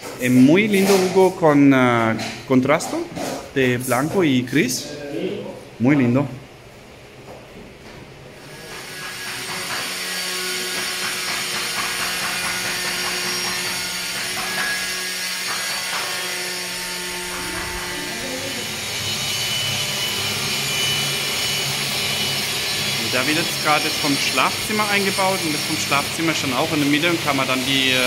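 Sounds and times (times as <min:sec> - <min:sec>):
power tool droning: 0:08.4 - 0:28.0.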